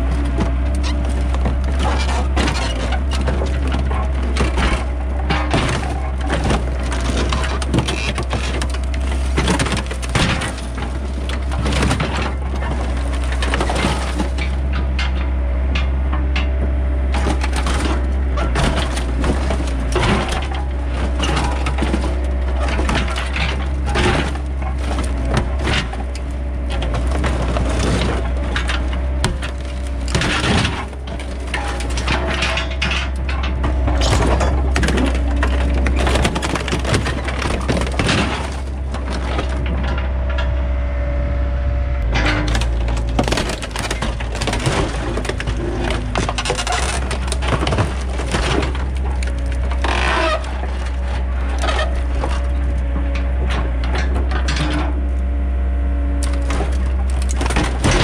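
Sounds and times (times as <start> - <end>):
diesel engine running: 0.0 - 58.0
sheet metal and glass crunching: 0.3 - 16.5, 17.1 - 40.5, 42.1 - 55.0, 56.2 - 58.0.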